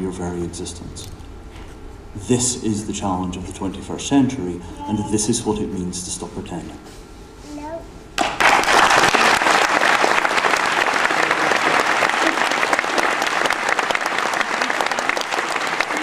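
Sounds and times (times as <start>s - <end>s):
audience applauding: 8.2s - 16.0s.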